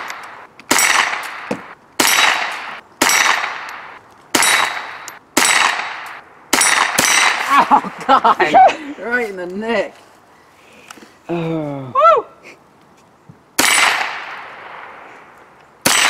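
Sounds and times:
rifle shots: 0.0 - 7.5, 13.6 - 15.1.

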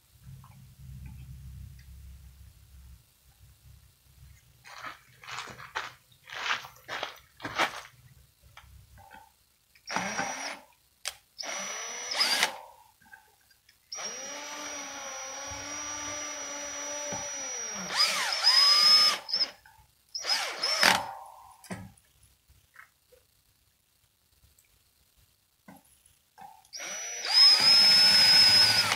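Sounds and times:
drill motor whine: 9.9 - 10.6, 11.4 - 12.6, 13.9 - 19.6, 20.2 - 21.1, 26.8 - 28.9.

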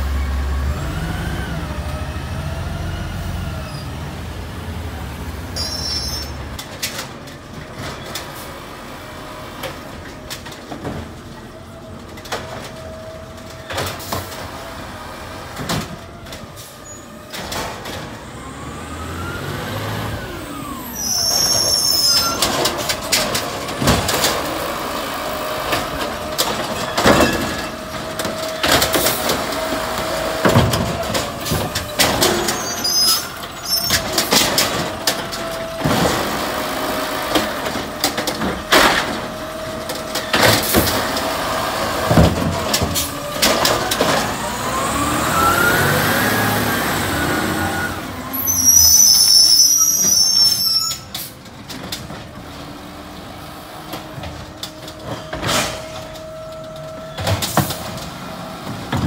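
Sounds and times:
garbage truck diesel engine: 0.0 - 59.0
high brake squeals: 3.5 - 4.0, 5.5 - 6.5, 16.7 - 17.2, 20.6 - 22.8, 32.4 - 34.2, 47.4 - 51.4.

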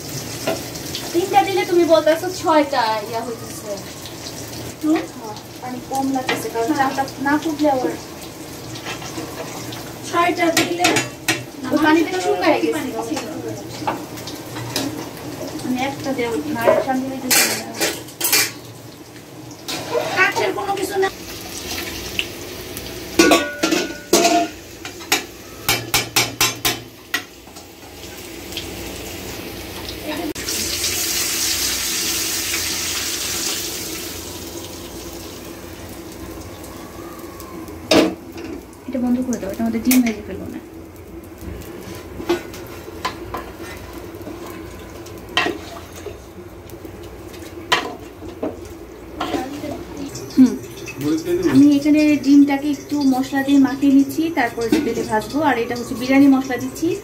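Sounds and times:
spoon knocking against metal pot: 25.1 - 27.3.

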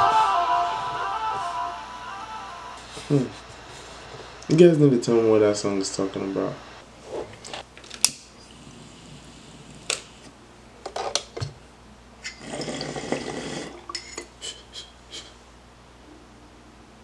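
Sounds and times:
water bong bubbling: 12.2 - 14.2.

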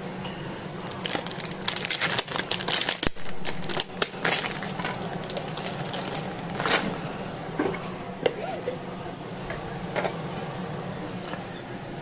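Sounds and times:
food packaging crinkling: 0.8 - 7.0.

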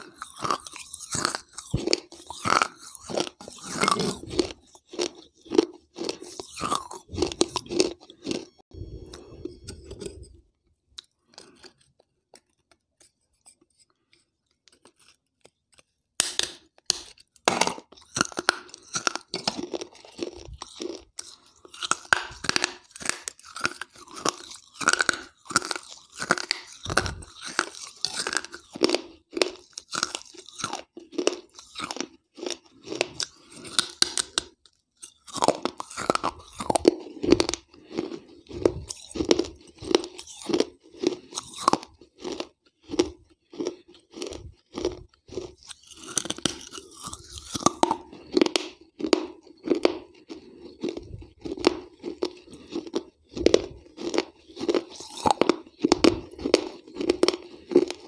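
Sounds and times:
crunching and chewing clay: 0.0 - 58.0.

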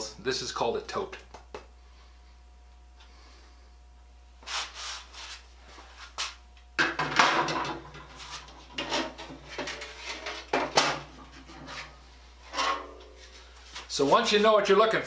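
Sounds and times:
saw blades scraping and clanking: 11.3 - 13.0.

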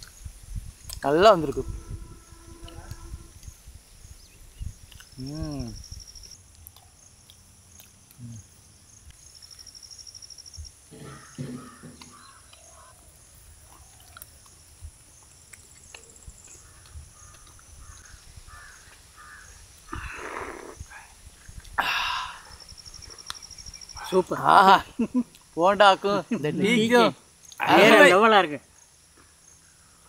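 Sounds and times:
insects chirping in trills: 0.0 - 30.0
steady high hum: 1.0 - 3.6
faint bird calls: 10.9 - 14.3, 15.8 - 21.2
person sipping hot tea: 19.8 - 22.5.

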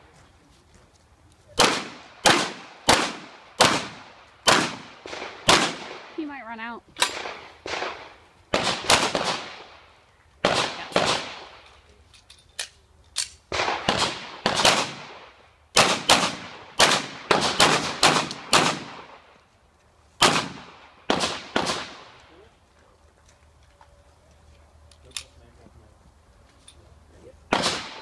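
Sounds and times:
handgun shots echoing: 10.4 - 11.7, 27.5 - 28.0.

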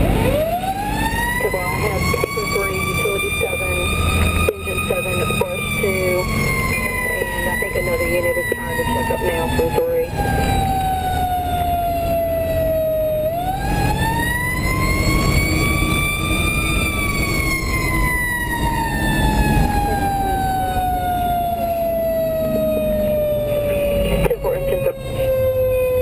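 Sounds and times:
diesel engine rumble: 0.0 - 26.0
fire engine siren wailing: 0.0 - 26.0.

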